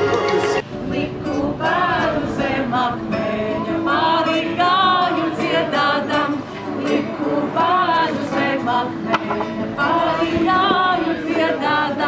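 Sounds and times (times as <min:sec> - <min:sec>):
acoustic guitar: 0:00.0 - 0:12.0
voices singing: 0:00.0 - 0:12.0.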